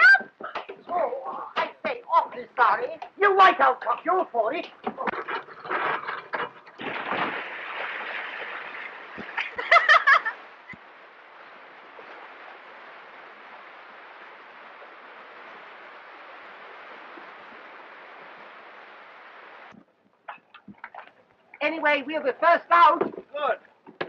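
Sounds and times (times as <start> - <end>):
high yelps: 0.0 - 0.6
water rushing through sluices: 0.0 - 24.0.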